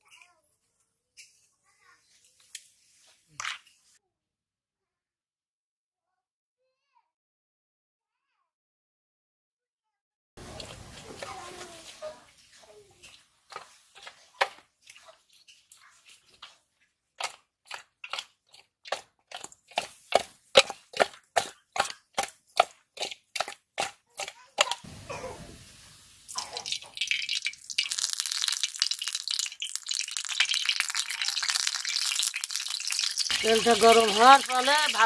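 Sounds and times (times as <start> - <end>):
hot oil sizzling and crackling: 10.4 - 16.6, 23.0 - 35.0
fish squelching in steel bowl: 13.0 - 24.8, 26.3 - 35.0.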